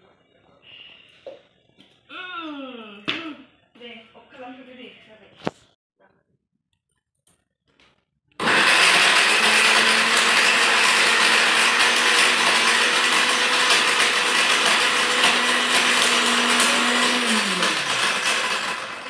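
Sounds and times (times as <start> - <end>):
mixer grinder whirring: 8.4 - 19.0.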